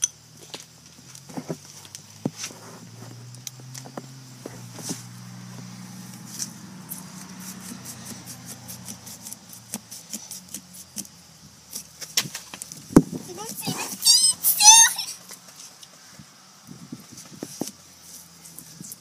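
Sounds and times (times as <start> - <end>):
knife sawing pumpkin rind: 7.0 - 11.1.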